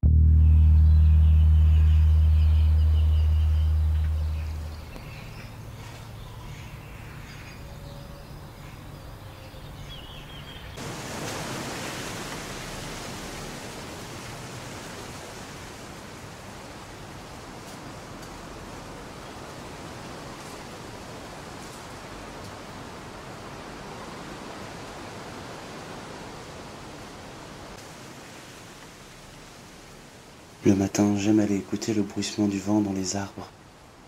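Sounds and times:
high chirps: 0.1 - 6.4
wind rushing through trees: 0.9 - 34.0.

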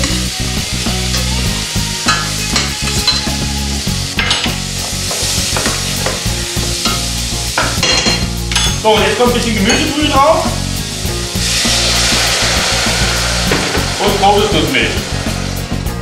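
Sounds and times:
vegetables sizzling in a pot: 0.0 - 16.0
steady low hum: 11.5 - 16.0.

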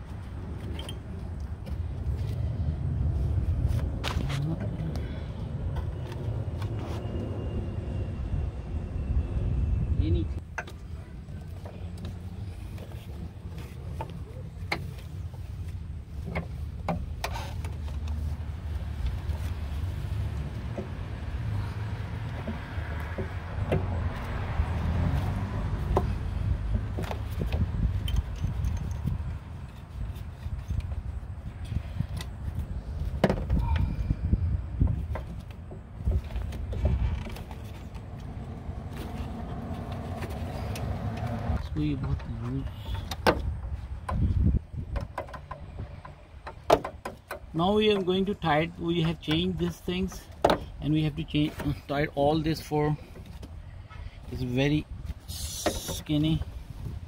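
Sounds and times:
steady low rumble: 0.0 - 24.8.

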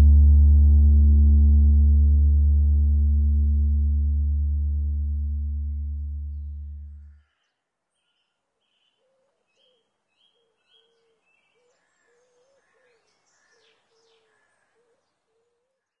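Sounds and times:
birds chirping and warbling: 6.3 - 15.6.

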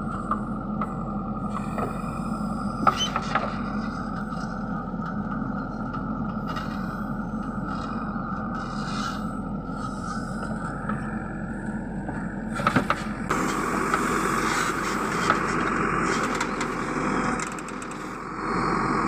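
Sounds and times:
diesel engine running under load: 0.0 - 19.0
backhoe bucket knocking and scraping soil: 12.1 - 16.8.

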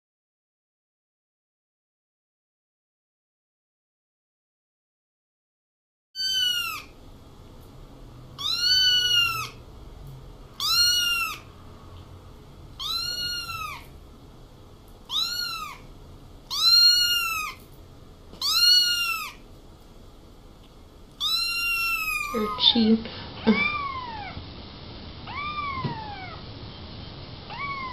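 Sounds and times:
kitten meowing: 6.2 - 7.0, 8.4 - 9.6, 10.6 - 11.5, 12.8 - 13.9, 15.1 - 15.9, 16.5 - 17.6, 18.4 - 19.4, 21.2 - 22.9, 23.5 - 24.4, 25.2 - 26.4, 27.5 - 27.9.

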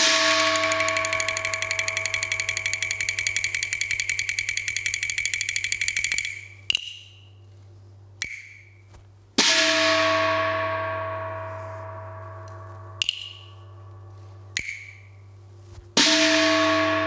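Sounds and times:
gong crash: 0.0 - 2.5, 9.4 - 13.0, 16.0 - 17.0
fast percussion roll: 0.0 - 6.6
sharp ringing strokes: 0.0 - 7.4, 8.2 - 15.3, 16.0 - 17.0.

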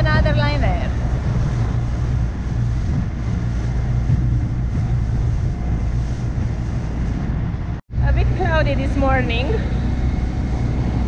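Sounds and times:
boat engine humming: 0.0 - 11.0
water rushing: 0.0 - 11.0
wind: 0.0 - 11.0.

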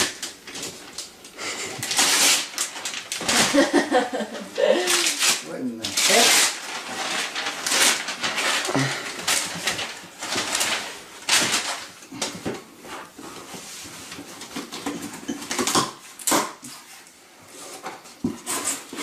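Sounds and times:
paper and cardboard rustling: 0.0 - 19.0.

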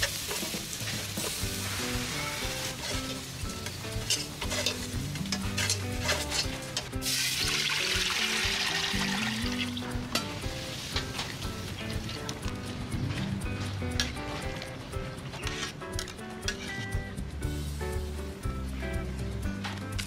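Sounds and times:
metal utensil scraping a pan: 0.0 - 7.4, 15.4 - 16.9
garlic sizzling in a pan: 0.0 - 12.2
background music: 0.0 - 20.0.

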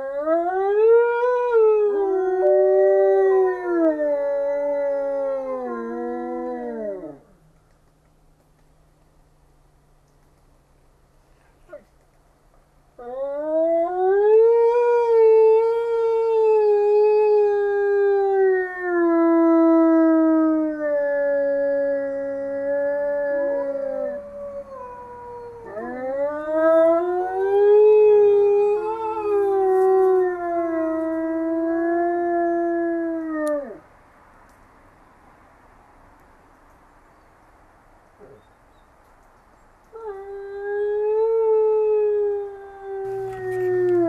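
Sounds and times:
wolves howling: 20.1 - 32.2.

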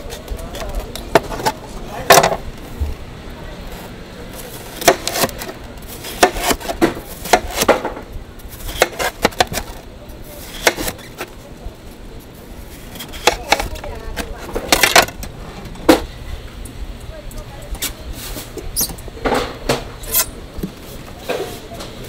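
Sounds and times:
knife slicing watermelon: 4.4 - 7.8, 8.5 - 9.8, 10.4 - 11.3, 12.8 - 14.4.

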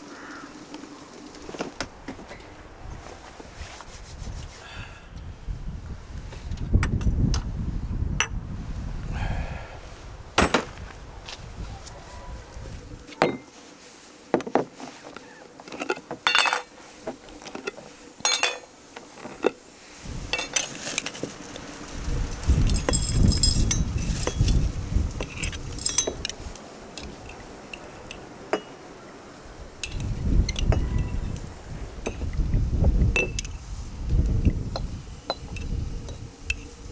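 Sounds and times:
glass jars clinking: 15.7 - 16.7, 18.2 - 18.7, 20.3 - 20.7, 25.4 - 26.4.

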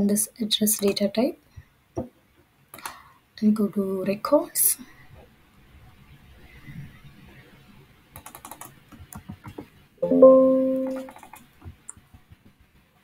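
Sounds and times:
keyboard typing: 8.2 - 8.7, 10.0 - 11.4
pitched chime: 10.0 - 11.1.

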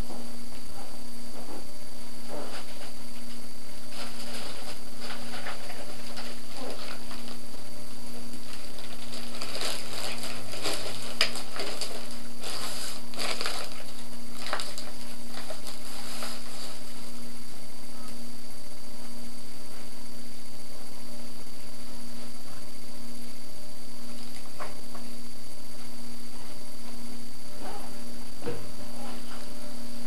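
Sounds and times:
steady electrical hum: 0.0 - 30.0
foil packets crinkling: 8.3 - 17.0.

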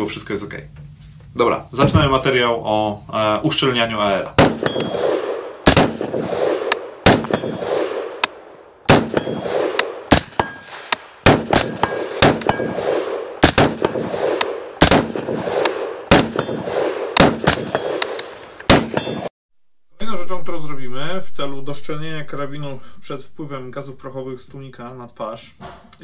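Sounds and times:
rifle shots: 4.4 - 19.3
metallic ringing: 4.6 - 5.1, 7.3 - 7.8, 9.1 - 9.6, 10.3 - 10.8, 11.7 - 12.8, 16.3 - 18.1, 18.9 - 19.3.

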